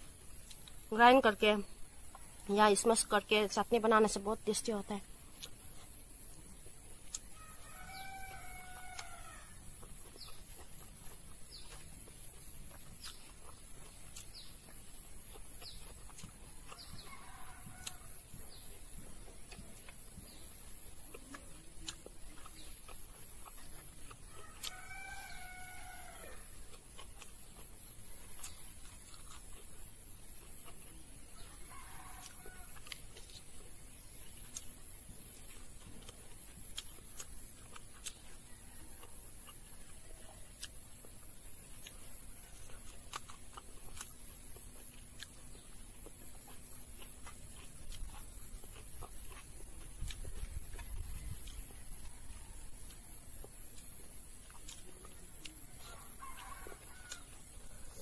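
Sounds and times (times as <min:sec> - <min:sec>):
rooster crowing: 0:07.4 - 0:09.7, 0:16.7 - 0:18.4, 0:24.3 - 0:26.6, 0:31.4 - 0:33.0, 0:55.7 - 0:58.0.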